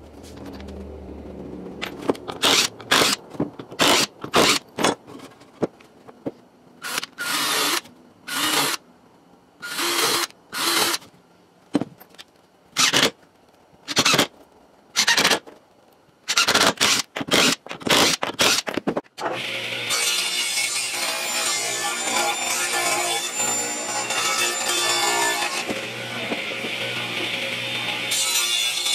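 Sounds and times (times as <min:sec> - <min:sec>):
impact driver drilling into wood: 0:02.4 - 0:03.2, 0:03.8 - 0:04.6, 0:06.8 - 0:08.8, 0:09.6 - 0:11.0, 0:12.8 - 0:13.1, 0:16.3 - 0:18.7.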